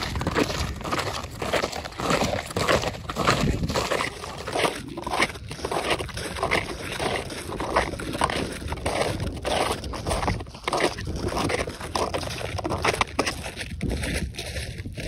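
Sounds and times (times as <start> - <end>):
footsteps crunching in snow: 0.0 - 15.0
wind buffeting microphone: 2.2 - 5.7, 12.3 - 15.0.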